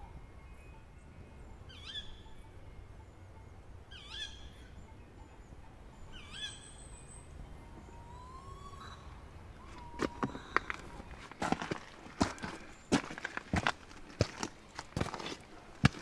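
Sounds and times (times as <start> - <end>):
swooping whistled call: 3.9 - 5.0, 5.9 - 11.1
footsteps on stony path: 9.7 - 16.0.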